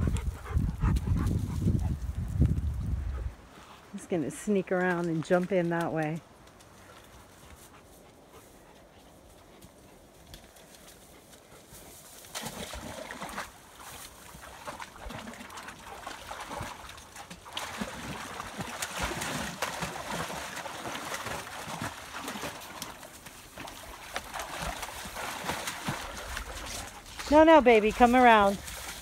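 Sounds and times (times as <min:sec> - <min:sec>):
dogs splashing in water: 0:11.6 - 0:29.0
sloshing water: 0:12.1 - 0:29.0.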